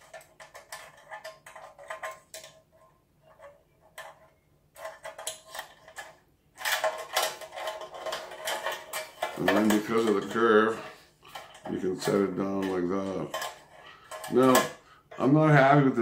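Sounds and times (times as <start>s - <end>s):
metal pan clattering: 3.3s - 14.8s.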